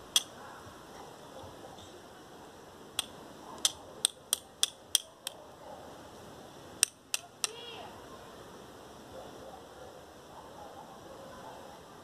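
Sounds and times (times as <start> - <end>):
steel striker hitting flint: 0.1 - 0.3, 3.0 - 5.4, 6.8 - 7.6.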